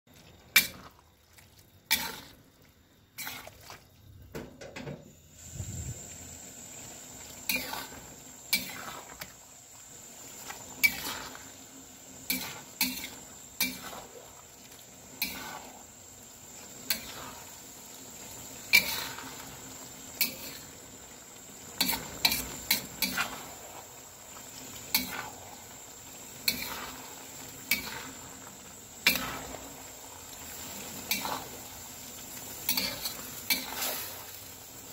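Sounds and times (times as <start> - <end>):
food sizzling: 0.1 - 34.9
metal spatula scraping wok: 1.9 - 2.4, 3.2 - 3.6, 7.4 - 9.3, 10.3 - 11.6, 12.2 - 14.2, 15.1 - 15.9, 16.8 - 17.6, 18.3 - 20.8, 21.7 - 23.9, 24.9 - 25.4, 26.4 - 28.3, 29.0 - 29.7, 30.4 - 31.8, 32.5 - 34.4.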